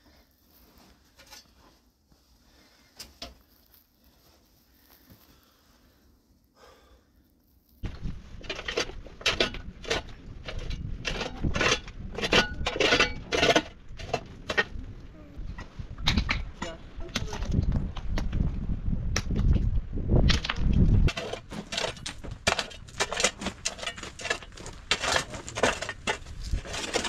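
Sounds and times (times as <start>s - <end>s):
shovel digging into gravel: 21.1s - 27.0s.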